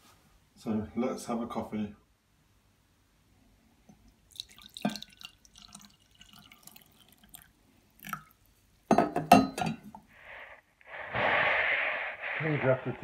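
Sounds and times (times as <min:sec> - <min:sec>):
coffee pouring into mug: 0:04.2 - 0:08.4.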